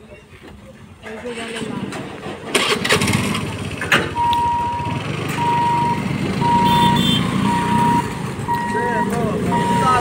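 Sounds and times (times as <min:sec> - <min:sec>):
motorcycle engines idling: 0:00.5 - 0:10.0
high warning beeps: 0:04.2 - 0:10.0.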